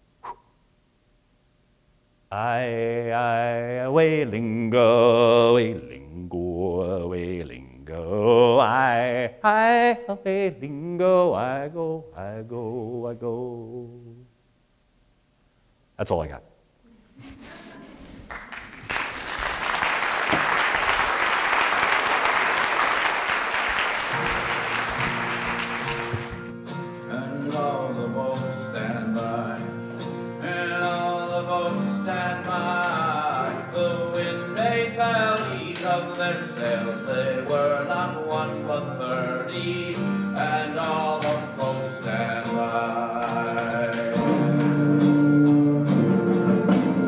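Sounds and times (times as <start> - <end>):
person singing: 2.3 - 14.3, 27.1 - 29.8, 30.4 - 45.2
audience applauding: 18.0 - 26.5.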